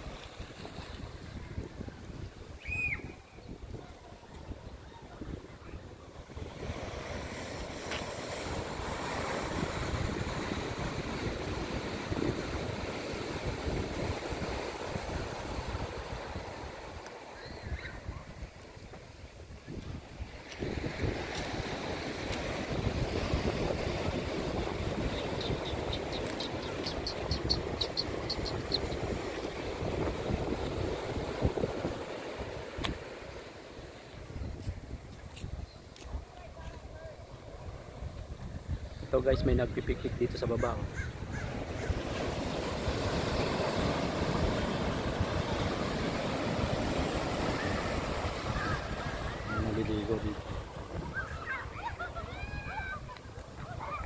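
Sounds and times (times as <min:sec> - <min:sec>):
surf breaking on beach: 0:00.0 - 0:54.0
wind buffeting microphone: 0:00.0 - 0:54.0.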